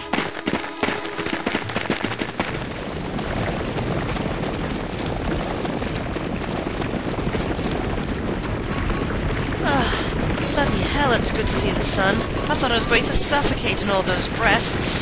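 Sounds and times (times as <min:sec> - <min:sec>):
music: 0:00.0 - 0:04.1, 0:08.4 - 0:15.0
crowd running footsteps: 0:00.0 - 0:15.0.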